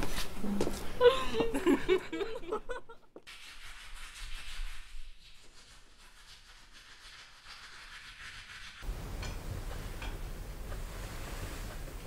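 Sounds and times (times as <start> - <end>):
steady hiss: 8.8 - 12.0.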